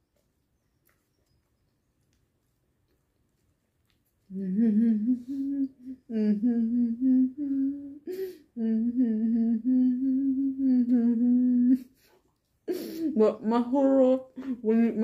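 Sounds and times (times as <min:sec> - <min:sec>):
woman humming with mouth closed: 0:04.3 - 0:12.0.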